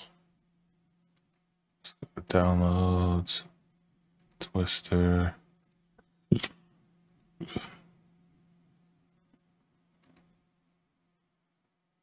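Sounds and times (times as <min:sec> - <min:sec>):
faint steady hum: 0:00.0 - 0:12.0
computer mouse clicks: 0:01.1 - 0:01.5, 0:04.2 - 0:04.5, 0:05.6 - 0:05.8, 0:06.4 - 0:07.4, 0:10.0 - 0:10.4.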